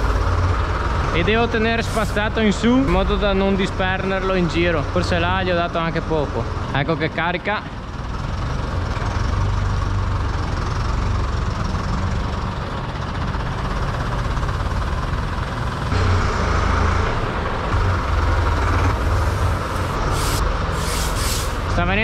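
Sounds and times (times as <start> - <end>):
rushing hiss: 0.0 - 0.4, 1.8 - 2.3, 18.9 - 21.8
tractor diesel engine running: 0.0 - 22.0.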